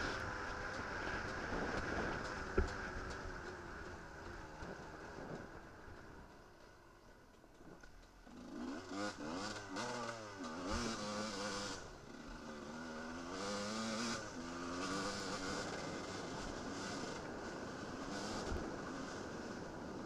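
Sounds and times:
motorcycle engine revving: 0:00.0 - 0:20.0.

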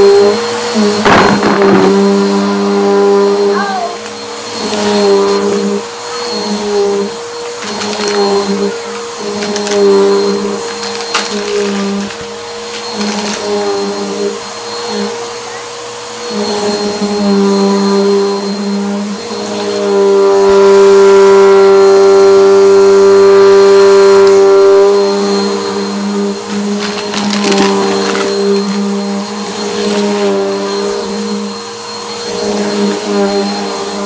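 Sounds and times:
vacuum cleaner running: 0:00.0 - 0:34.0.

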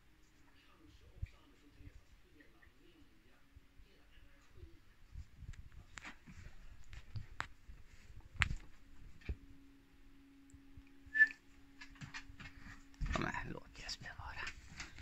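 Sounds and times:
faint steady hum: 0:00.0 - 0:15.0
light clicks and taps: 0:05.4 - 0:09.4.

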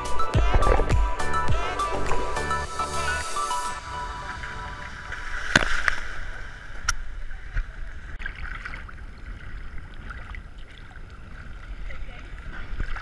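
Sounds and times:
water sloshing and splashing: 0:04.0 - 0:13.0.

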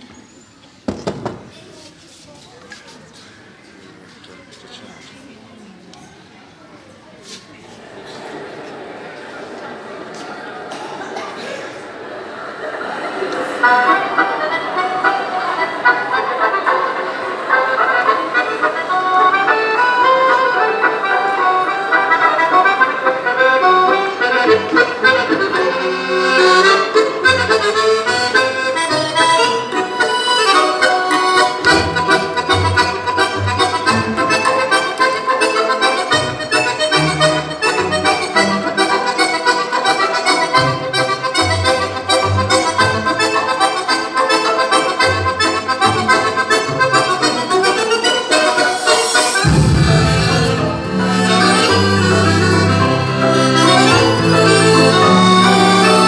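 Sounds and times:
instrumental music with bass line: 0:49.0 - 0:56.0.

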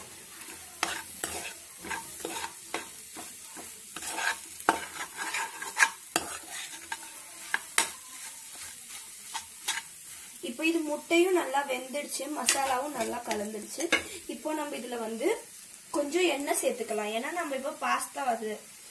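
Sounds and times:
spoon scraping pan: 0:00.0 - 0:11.2, 0:11.9 - 0:14.4
egg sizzling: 0:00.0 - 0:18.9.

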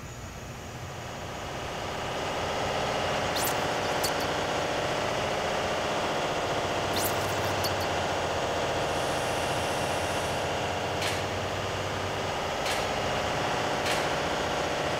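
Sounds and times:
machinery hum: 0:00.0 - 0:14.9
quick high swishes: 0:03.2 - 0:04.5, 0:06.9 - 0:07.9.

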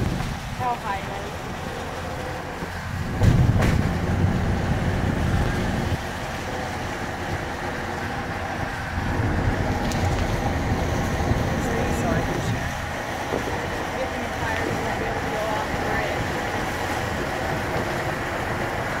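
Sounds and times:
tyre and engine rumble: 0:00.0 - 0:19.0
car bump: 0:03.0 - 0:04.3.

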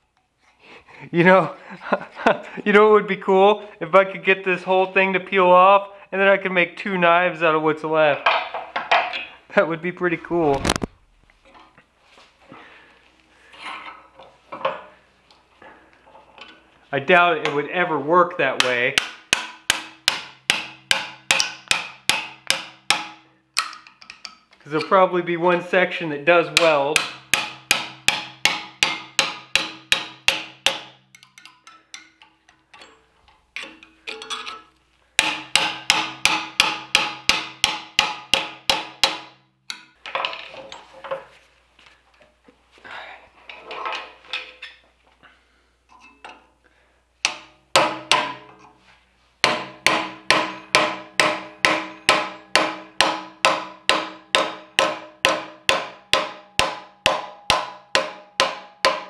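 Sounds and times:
hammer striking metal chisel: 0:18.6 - 0:25.0, 0:26.5 - 0:40.0, 0:47.2 - 0:48.7, 0:49.4 - 0:59.0.

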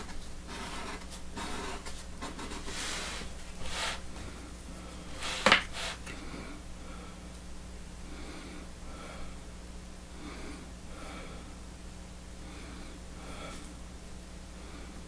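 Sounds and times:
steady low hum: 0:00.0 - 0:15.0
man breathing through nose: 0:12.4 - 0:13.7.

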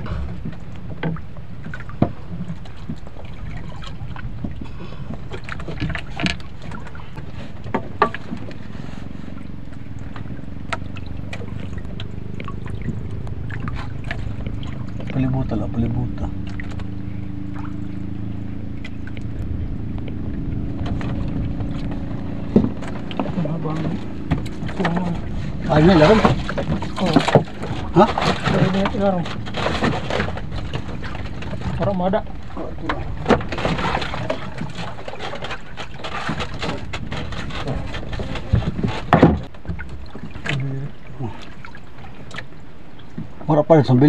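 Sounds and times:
knocks against wooden hull: 0:00.0 - 0:08.7, 0:20.0 - 0:40.6
boat engine droning: 0:00.0 - 0:44.0
sea noise: 0:00.0 - 0:44.0
wind: 0:00.0 - 0:44.0.

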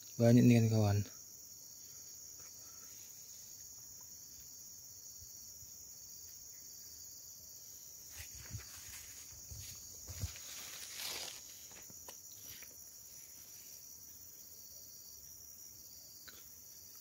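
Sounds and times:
insects chirring: 0:00.0 - 0:17.0
soft footsteps: 0:08.0 - 0:13.8.

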